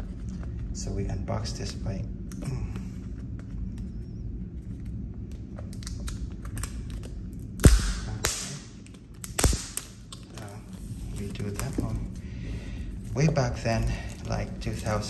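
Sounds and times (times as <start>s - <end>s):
plastic film crackling: 4.6s - 15.0s.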